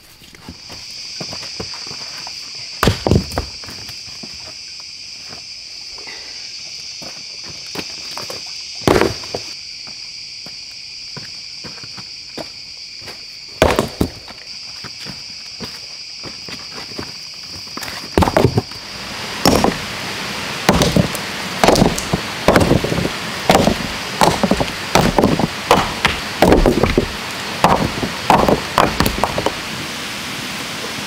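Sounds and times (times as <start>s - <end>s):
high insect drone: 0.0s - 31.0s
hand tool chopping blows: 19.4s - 19.8s, 20.7s - 29.6s.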